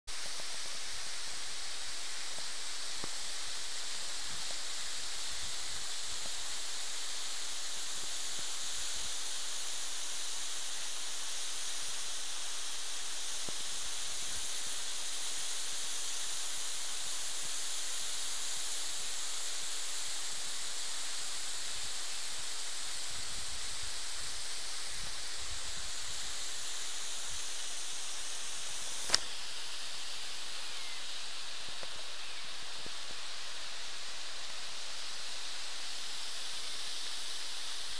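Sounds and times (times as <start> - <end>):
sharp click: 29.0 - 29.3.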